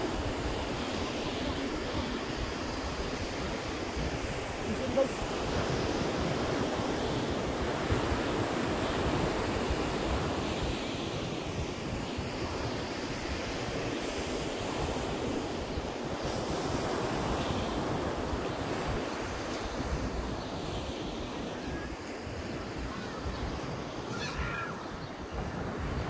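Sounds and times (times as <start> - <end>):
ocean surf breaking on beach: 0.0 - 26.0
wind buffeting microphone: 0.0 - 26.0.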